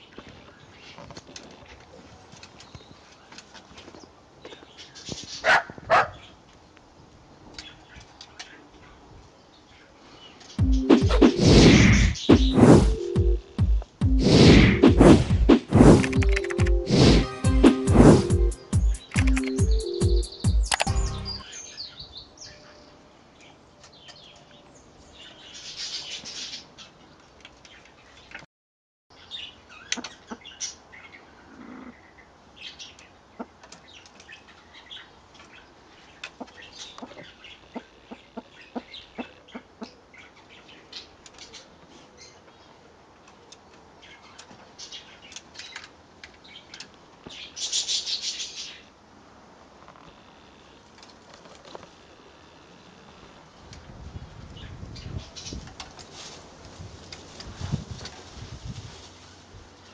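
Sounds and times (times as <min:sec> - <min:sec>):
buzzy bird trill: 0:10.6 - 0:21.6
bird chips and clicks: 0:15.7 - 0:16.8, 0:18.6 - 0:21.4.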